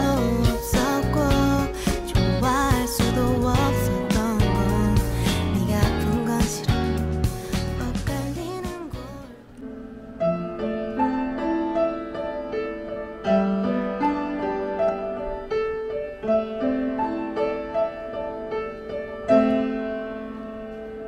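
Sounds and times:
loud piano chord: 0.0s - 21.0s
upright piano melody: 0.0s - 21.0s.

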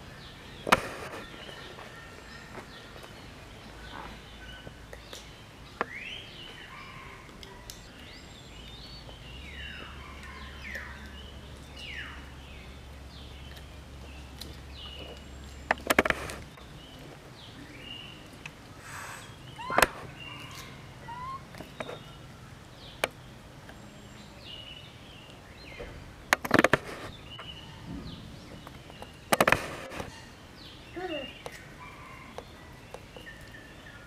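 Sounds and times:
small birds chirping: 0.0s - 34.0s
sharp clicks or knocks: 15.7s - 16.5s, 25.8s - 27.1s, 28.6s - 30.1s.

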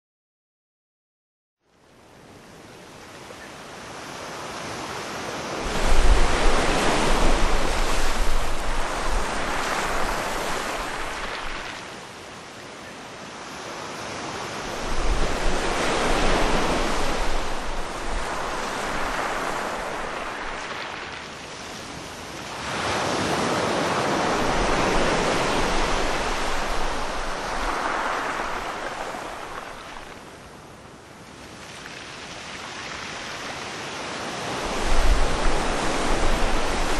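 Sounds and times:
waves breaking and washing in: 1.7s - 36.9s
low rumble of breaking waves: 4.8s - 11.8s, 14.3s - 22.6s, 23.7s - 30.4s, 34.5s - 36.9s.

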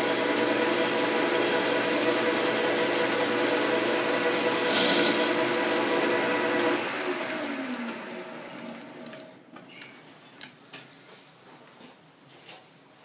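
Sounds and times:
metal lathe gear whine winding down: 0.0s - 9.2s.

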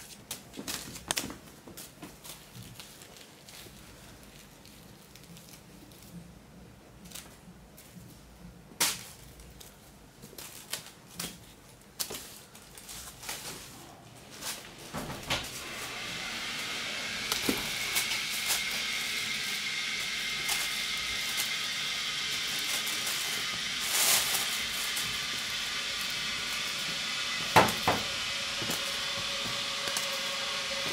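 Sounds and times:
plastic bag rustling: 0.0s - 6.3s, 9.0s - 30.9s
kittens playing on a tiled floor: 0.0s - 30.9s
steady hiss with high tone: 14.6s - 30.9s.

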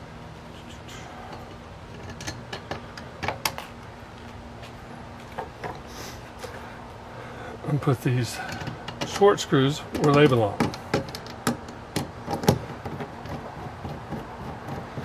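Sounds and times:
hand tools clicking and knocking: 1.3s - 3.7s, 8.3s - 15.0s.

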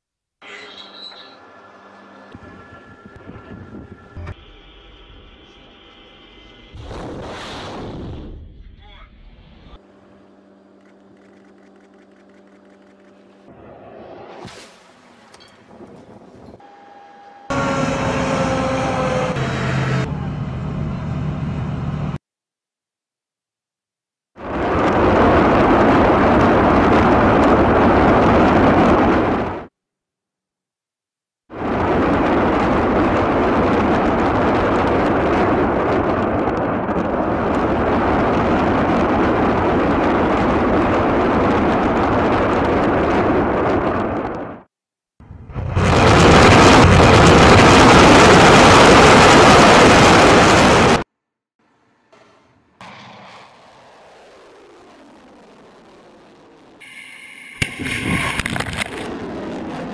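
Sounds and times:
rocket launch rush: 6.8s - 9.8s, 45.4s - 51.1s, 52.5s - 59.9s
truck engines running: 14.8s - 22.2s.

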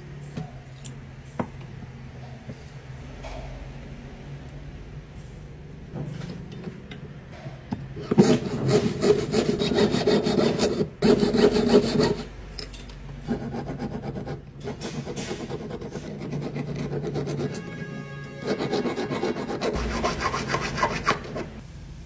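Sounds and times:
hand file strokes: 8.0s - 12.3s, 13.3s - 21.6s
saw cutting back and forth: 8.0s - 12.3s, 13.3s - 21.6s.

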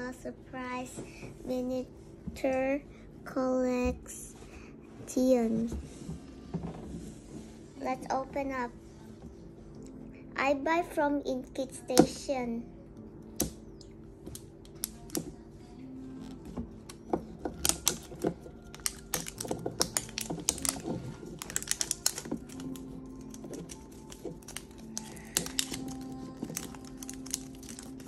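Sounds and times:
fingernails peeling plastic wrapper: 16.2s - 28.0s.

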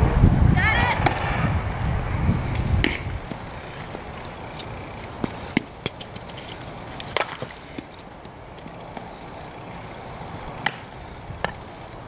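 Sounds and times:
low rumble: 0.0s - 3.4s.

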